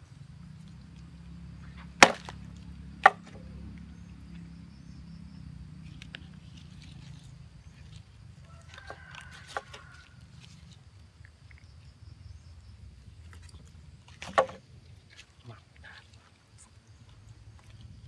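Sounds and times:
blade knocking and scraping: 1.6s - 3.8s, 5.8s - 10.8s, 13.4s - 15.4s
machete chopping onto wooden board: 1.8s - 3.5s, 14.2s - 14.6s.

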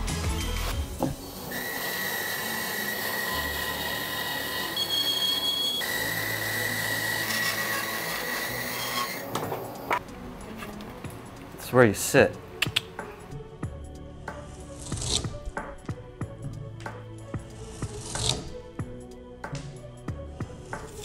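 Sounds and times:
bandsaw cutting wood: 1.5s - 9.4s, 17.5s - 18.5s.

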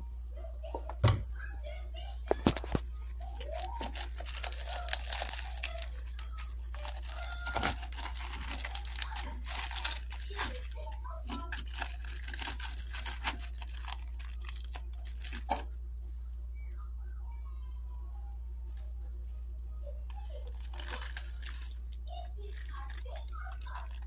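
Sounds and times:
steady low hum: 0.0s - 24.0s
fried crust crunching: 2.2s - 16.0s, 20.0s - 24.0s.

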